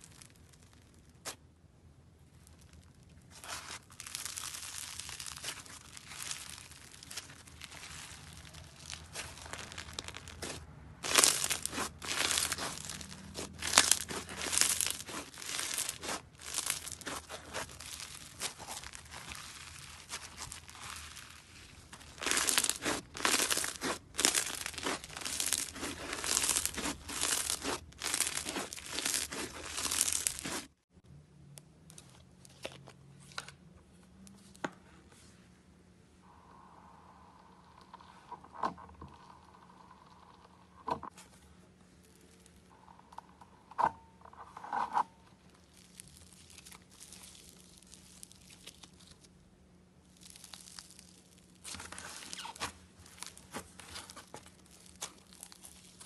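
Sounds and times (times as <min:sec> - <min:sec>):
fingers kneading crunchy slime: 0:02.2 - 0:30.8, 0:44.7 - 0:49.4, 0:50.0 - 0:56.0.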